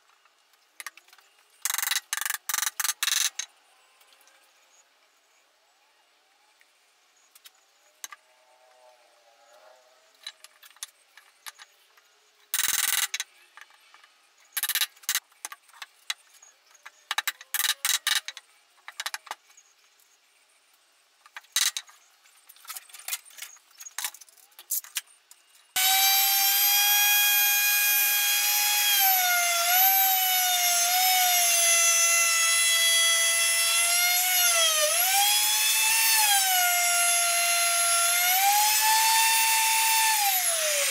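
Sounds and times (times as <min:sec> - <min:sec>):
wood and tools clicking: 0:00.0 - 0:03.5, 0:10.2 - 0:19.6, 0:21.2 - 0:40.9
electric router whining: 0:25.8 - 0:40.9.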